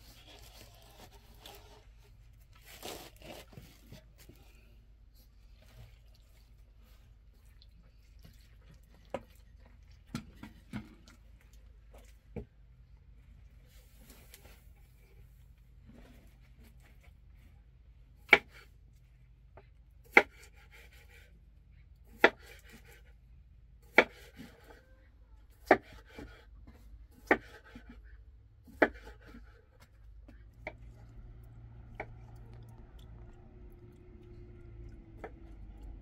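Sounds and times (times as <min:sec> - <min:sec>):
knife slicing potatoes on board: 0:18.2 - 0:18.7, 0:20.1 - 0:21.3, 0:22.1 - 0:23.1, 0:23.9 - 0:24.8, 0:25.6 - 0:28.0, 0:28.6 - 0:29.6.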